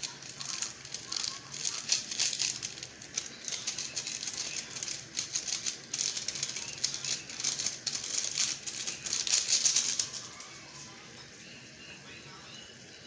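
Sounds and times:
seasoning packet shaken and crinkled: 0:00.0 - 0:10.5.

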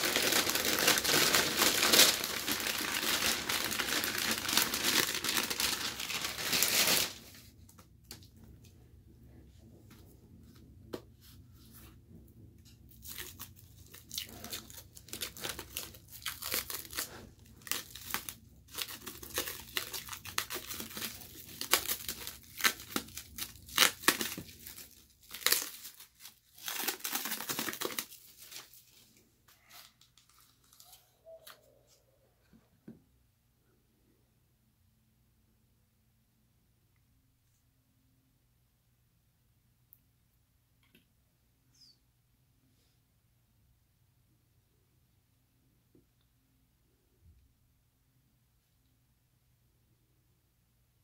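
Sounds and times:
plastic wrap tearing and crinkling: 0:00.0 - 0:07.4, 0:12.9 - 0:31.0.

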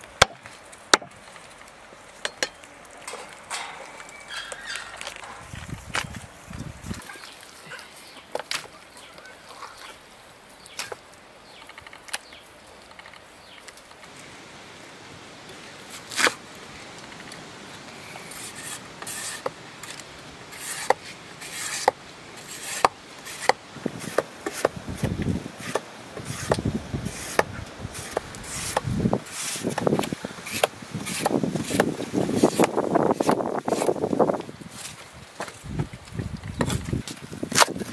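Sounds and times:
knocks and scraping on wood: 0:00.2 - 0:07.3, 0:20.6 - 0:37.9.

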